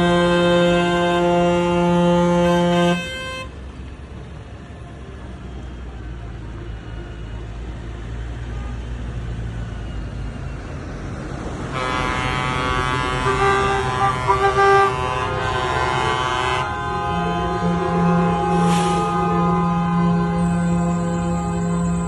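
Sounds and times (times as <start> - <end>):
vehicle horns blowing: 0.0 - 3.6, 11.7 - 22.0
trucks driving past: 0.0 - 22.0.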